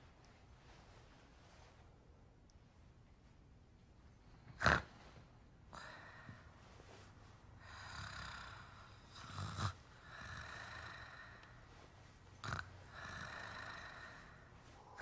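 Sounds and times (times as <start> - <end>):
slow heavy breathing: 4.3 - 15.0.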